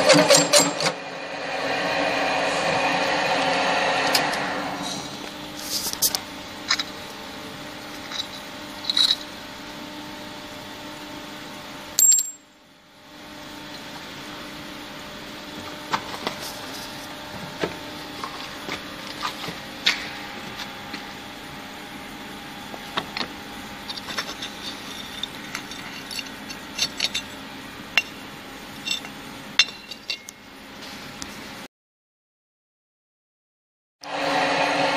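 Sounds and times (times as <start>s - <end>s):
drill press motor hum: 0.0s - 11.8s, 34.0s - 34.9s.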